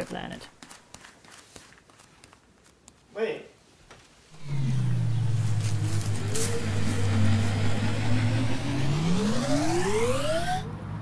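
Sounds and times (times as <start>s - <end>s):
low hum: 4.4s - 11.0s
rising whine: 4.4s - 11.0s.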